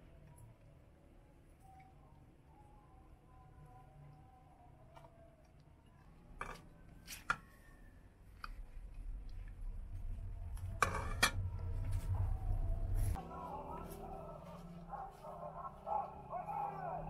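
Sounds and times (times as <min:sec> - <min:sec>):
low rumble: 0:08.4 - 0:15.1.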